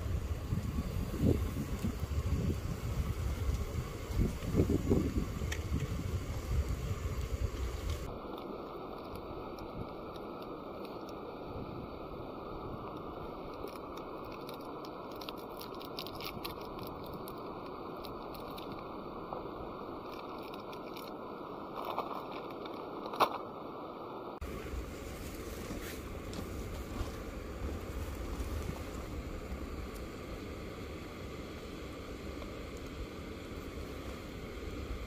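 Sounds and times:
steady hiss: 0.0s - 35.0s
packet crinkling: 13.6s - 17.4s, 21.7s - 23.4s.

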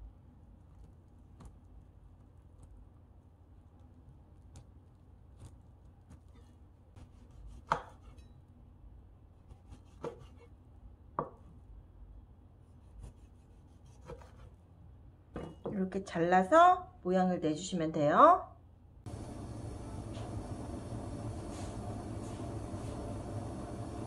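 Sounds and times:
knife slicing on cutting board: 5.4s - 8.3s, 9.5s - 10.5s, 12.8s - 14.6s.

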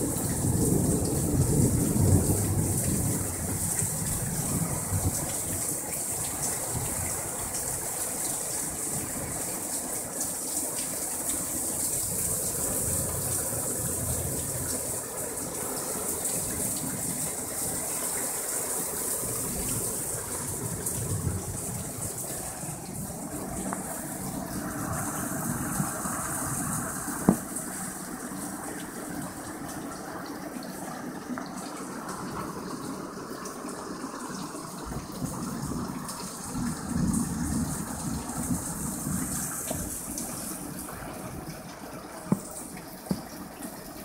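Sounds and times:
low thunder rumble: 0.0s - 5.9s
heavy rain pouring on roofs: 0.0s - 44.0s.

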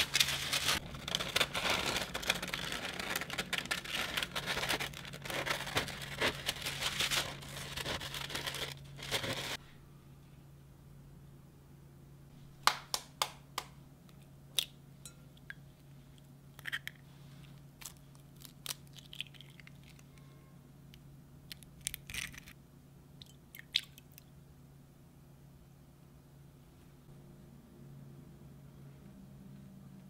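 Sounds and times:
steady low hum: 13.3s - 30.0s.

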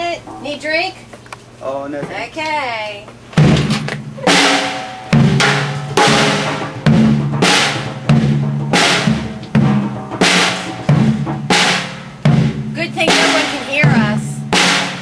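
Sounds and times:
child banging on drum kit: 3.4s - 15.0s.

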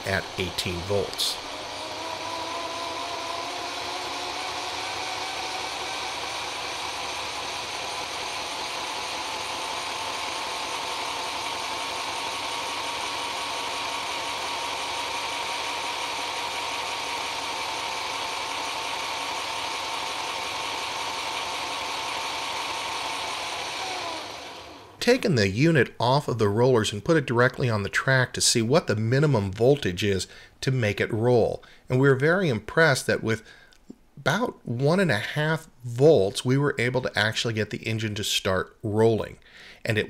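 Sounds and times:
model train motor whirring: 0.0s - 25.0s.

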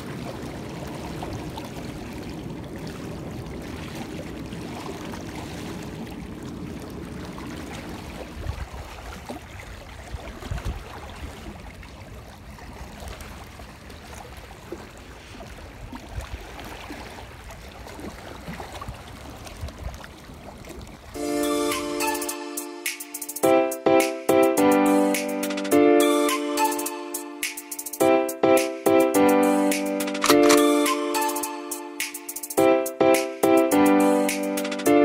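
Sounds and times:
sea water lapping: 0.0s - 21.2s.

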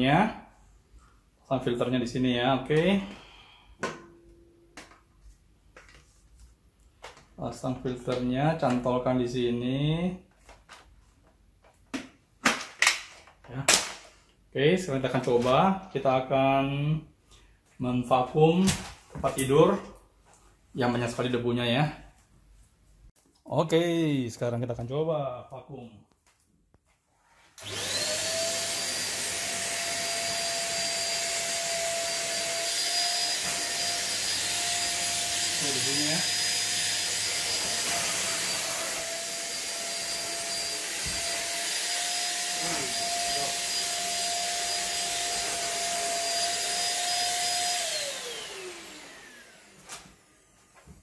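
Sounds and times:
vacuum cleaner motor whining: 27.6s - 51.0s.

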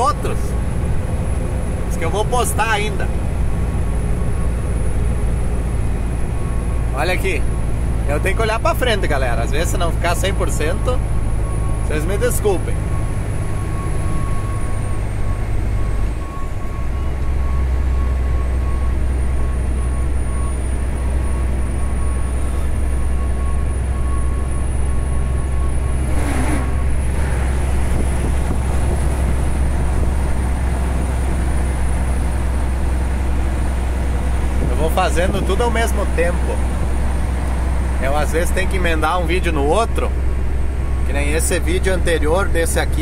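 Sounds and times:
engine and road drone: 0.0s - 43.0s
passing vehicle whoosh: 25.8s - 31.1s.

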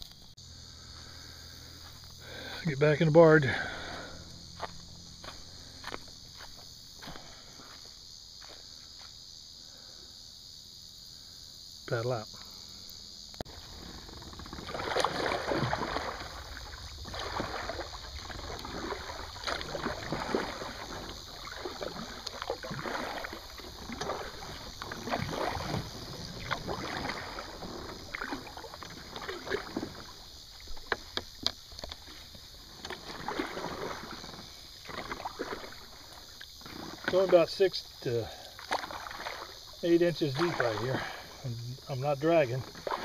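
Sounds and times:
paddle splashing in water: 13.5s - 41.4s, 42.3s - 43.0s.

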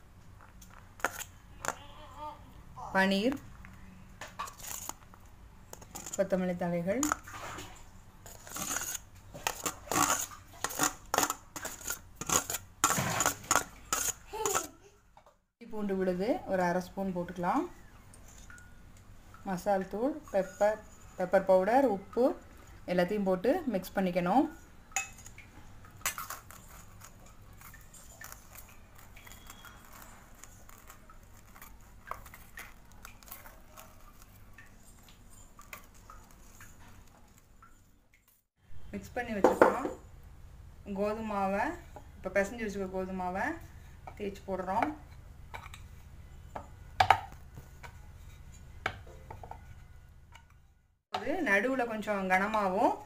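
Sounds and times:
spoon scraping metal bowl: 5.7s - 6.4s, 8.3s - 14.7s, 26.0s - 36.8s.

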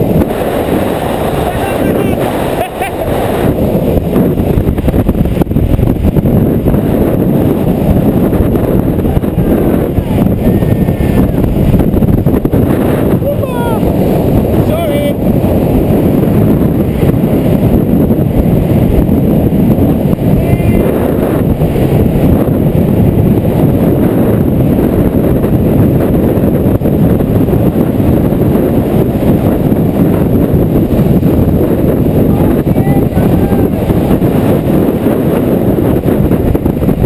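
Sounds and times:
wheels rumbling on asphalt: 0.0s - 37.0s
wind buffeting microphone: 0.0s - 37.0s.

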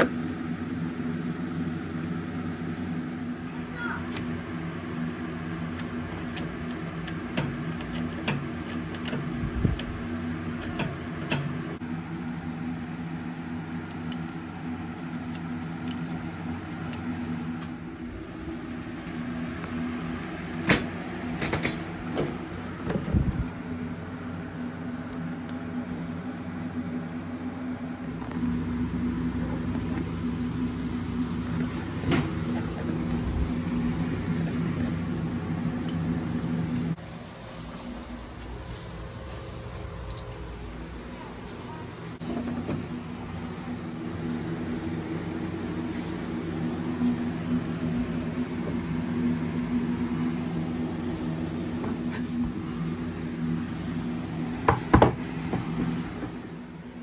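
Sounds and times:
mower engine idling: 0.0s - 57.0s
handling clicks and knocks: 5.7s - 11.7s.

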